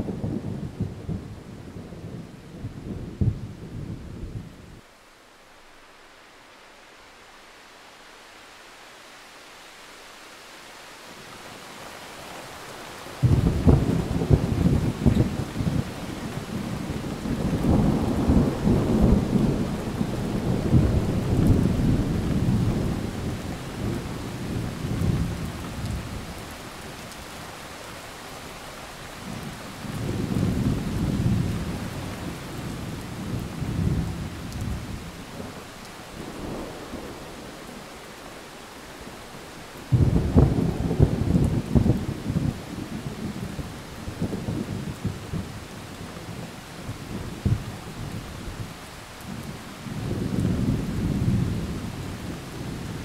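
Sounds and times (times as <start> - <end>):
rain hiss: 0.0 - 53.0
distant thunder rumbling: 13.2 - 26.4, 39.8 - 53.0.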